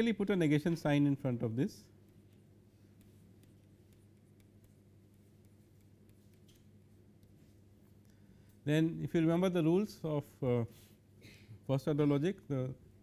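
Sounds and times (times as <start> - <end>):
low electrical hum: 0.0 - 13.0
stylus tapping on pen tablet: 2.0 - 7.4.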